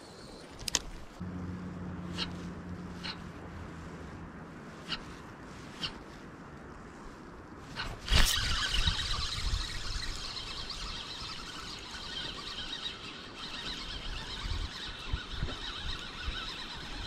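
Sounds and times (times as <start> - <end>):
wind rumble on microphone: 0.1 - 12.3, 13.5 - 17.0
fishing reel whirring: 8.0 - 17.0.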